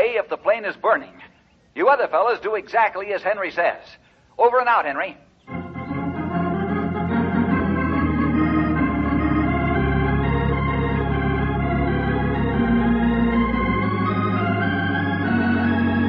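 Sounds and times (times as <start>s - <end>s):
organ chords: 5.4s - 16.0s.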